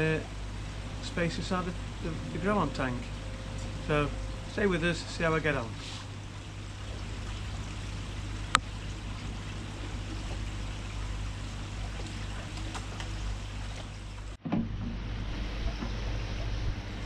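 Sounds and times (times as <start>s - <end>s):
even rushing noise: 0.0s - 8.6s
low hum: 0.0s - 17.0s.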